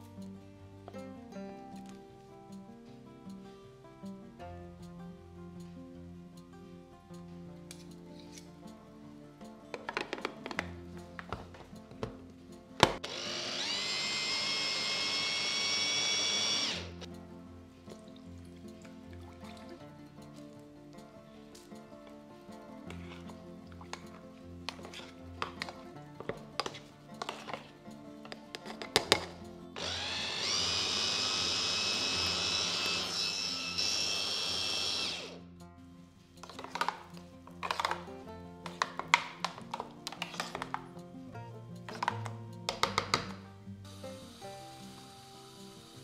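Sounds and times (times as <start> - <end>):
electric chopper motor whining: 13.0 - 17.1, 29.8 - 35.4.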